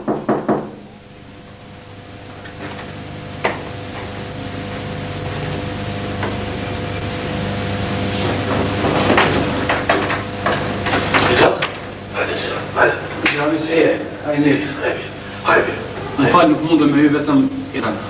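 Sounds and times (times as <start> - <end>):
steady hum and hiss: 0.0 - 18.0.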